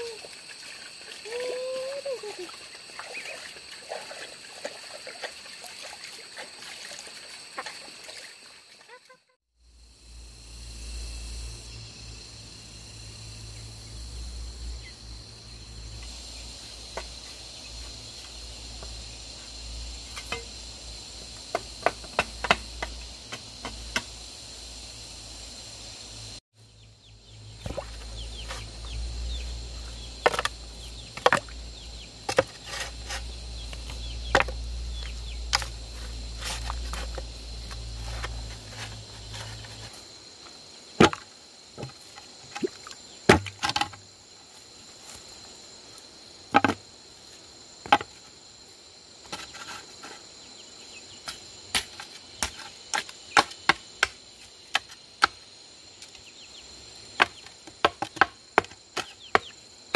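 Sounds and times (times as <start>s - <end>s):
high insect drone: 0.0s - 59.9s
bamboo being chopped: 21.5s - 24.1s, 30.2s - 31.6s, 32.2s - 34.6s, 35.5s - 35.8s, 41.0s - 42.0s, 43.3s - 44.0s, 46.5s - 46.8s, 47.8s - 48.2s, 51.3s - 55.4s, 57.2s - 59.6s.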